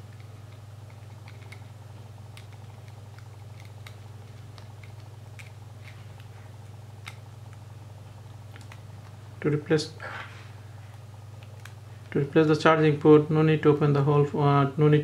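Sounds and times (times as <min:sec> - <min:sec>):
steady low hum: 0:00.0 - 0:15.0
fingers clicking on plastic phone parts: 0:00.1 - 0:01.7.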